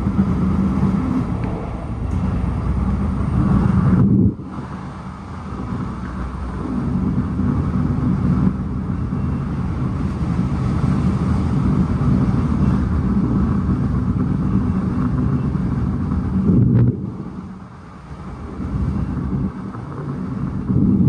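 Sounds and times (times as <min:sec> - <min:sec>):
train wheels rumbling on rail: 0:00.0 - 0:21.0.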